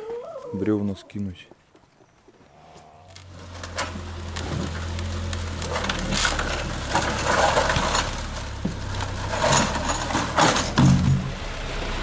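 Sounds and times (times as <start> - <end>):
truck engine running at low revs: 3.2 - 12.0
knocks and rattles: 5.6 - 11.4.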